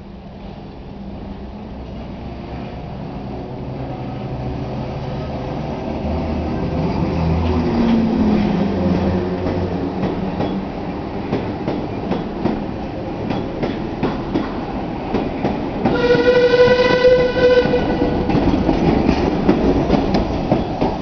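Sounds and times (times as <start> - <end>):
train wheels clicking over rail joints: 7.3 - 16.2, 17.6 - 21.0
train whistle: 15.9 - 18.4.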